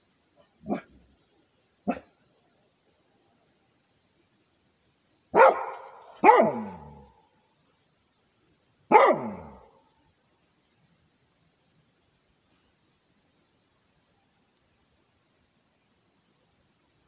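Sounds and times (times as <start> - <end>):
dog barking: 0.6 - 0.9, 1.9 - 2.1, 5.4 - 7.1, 8.9 - 9.7.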